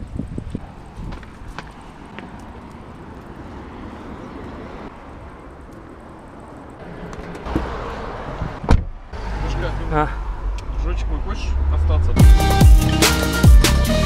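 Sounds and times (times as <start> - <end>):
low rumble: 10.2 - 12.7.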